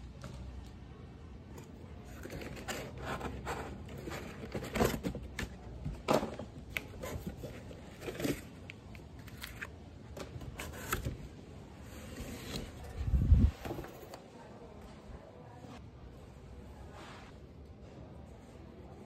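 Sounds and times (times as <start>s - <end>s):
cardboard scraping: 2.0s - 9.7s.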